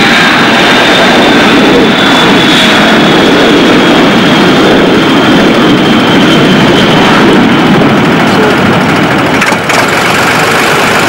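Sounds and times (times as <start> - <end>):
jet engines at takeoff: 0.0 - 11.0.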